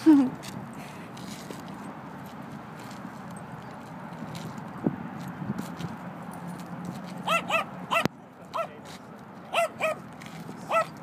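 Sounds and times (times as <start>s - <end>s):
dog barking: 7.3s - 8.7s, 9.5s - 10.0s, 10.7s - 10.9s.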